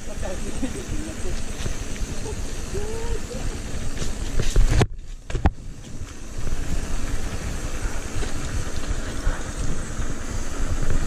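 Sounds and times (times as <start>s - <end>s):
bike tyres rolling on concrete: 0.0s - 11.0s
wind buffeting microphone: 0.0s - 11.0s.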